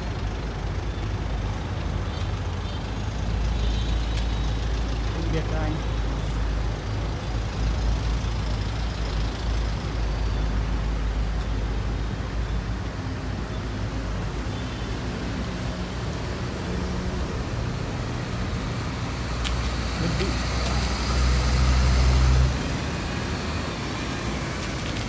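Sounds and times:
minibus engine rumble: 0:00.0 - 0:25.0
fire engine driving past: 0:15.4 - 0:25.0.

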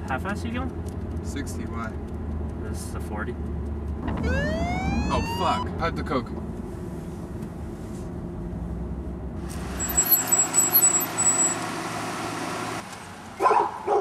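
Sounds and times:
car engine and road noise: 0:00.0 - 0:14.0
short high chirps: 0:09.8 - 0:11.6.

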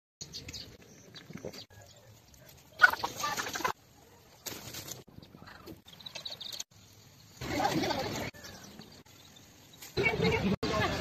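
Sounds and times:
farm animal calls: 0:02.7 - 0:03.8.

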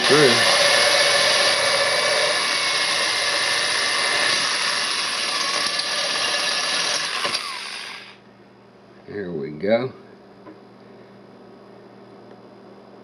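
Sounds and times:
electric drill grinding glass: 0:00.0 - 0:08.2.

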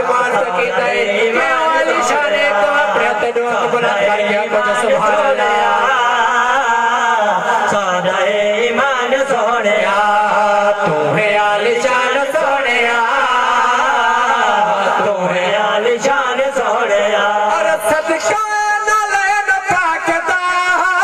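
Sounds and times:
men singing devotional chant: 0:00.0 - 0:21.0.

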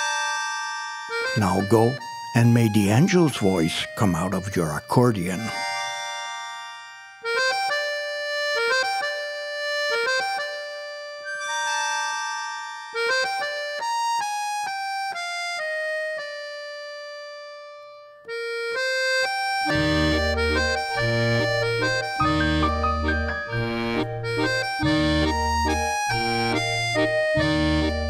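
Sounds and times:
keyboard waltz melody: 0:00.0 - 0:28.0
low bass and chord accompaniment: 0:19.7 - 0:28.0.

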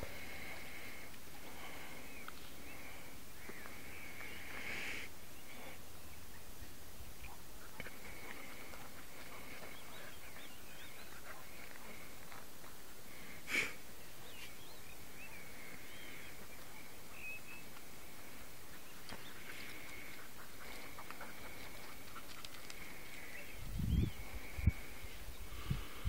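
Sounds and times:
faint bird chirps: 0:01.5 - 0:12.1, 0:13.9 - 0:26.0.

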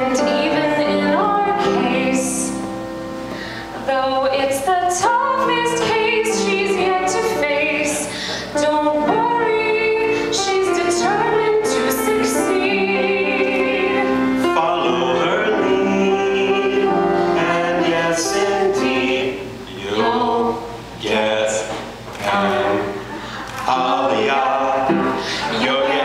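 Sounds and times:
woman singing: 0:00.0 - 0:02.7, 0:03.8 - 0:14.4
keyboard accompaniment: 0:00.0 - 0:26.0.

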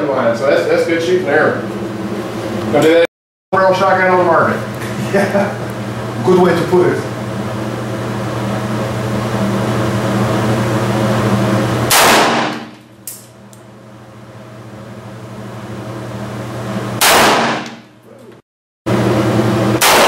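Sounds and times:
ventilation hum: 0:00.0 - 0:20.0
gunshots ringing indoors: 0:11.9 - 0:12.8, 0:17.0 - 0:17.9, 0:19.7 - 0:20.0.

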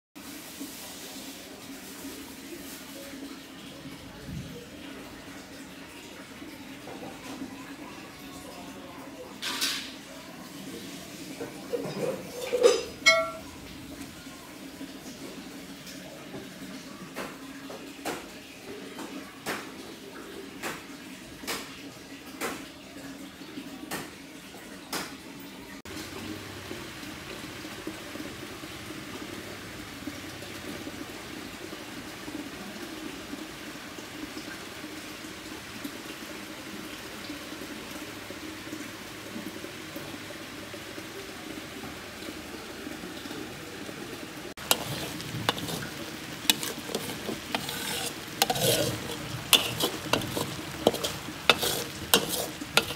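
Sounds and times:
running water: 0:00.2 - 0:52.9
metal spatula scraping a wok: 0:44.6 - 0:52.9
paste sizzling: 0:44.6 - 0:52.9.

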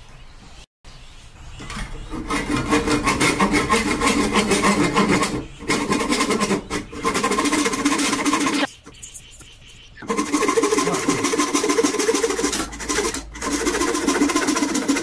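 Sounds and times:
hand saw sawing wood: 0:01.7 - 0:08.7, 0:10.0 - 0:15.0.

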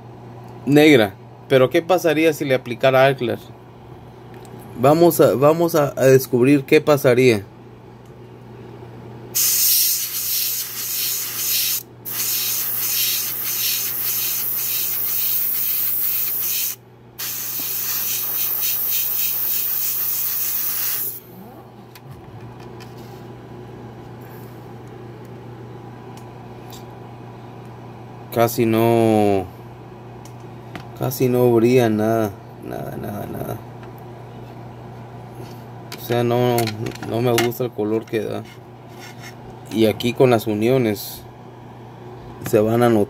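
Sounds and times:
airbrush spraying hiss: 0:09.4 - 0:21.2.

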